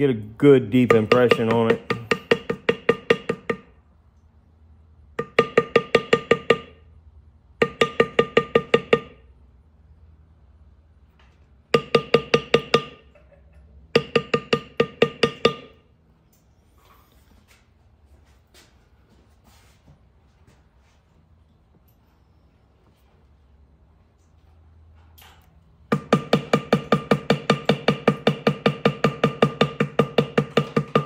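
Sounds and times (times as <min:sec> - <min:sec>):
mallet tapping metal stamp: 0:00.8 - 0:03.7, 0:05.2 - 0:06.8, 0:07.6 - 0:09.2, 0:11.8 - 0:13.1, 0:13.9 - 0:15.8, 0:25.9 - 0:31.0.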